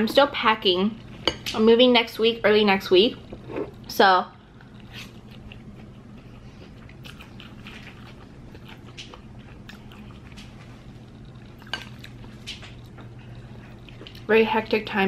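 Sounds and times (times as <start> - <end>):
faint low hum: 0.0 - 15.0
chewing: 4.5 - 14.3.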